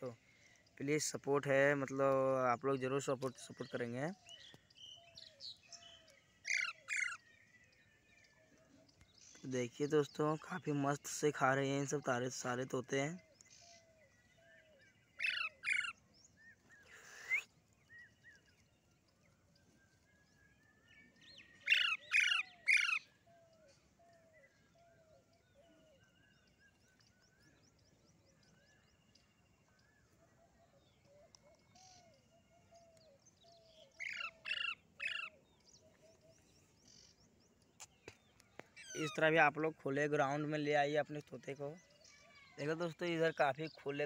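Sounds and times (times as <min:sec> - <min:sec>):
faint bird chirps: 0:00.0 - 0:44.0
parakeets screeching: 0:06.5 - 0:07.2, 0:15.2 - 0:16.0, 0:21.6 - 0:23.0, 0:34.0 - 0:35.4.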